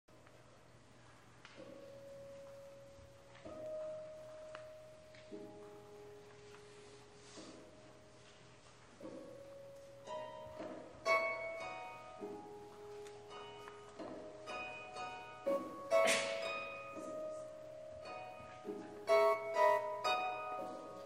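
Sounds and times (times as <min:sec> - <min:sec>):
harp plucked notes and chords: 0:09.2 - 0:21.0.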